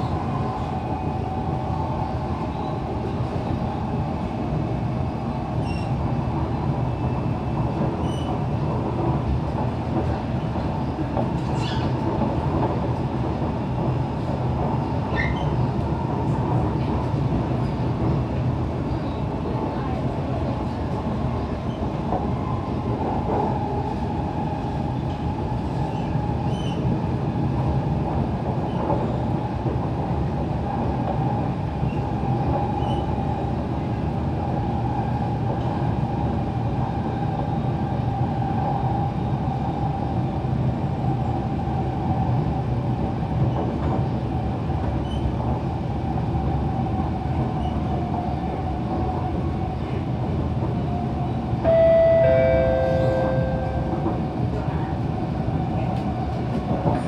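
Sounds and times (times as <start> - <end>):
train wheels rumbling: 0.0 - 57.0
train whine: 50.9 - 57.0.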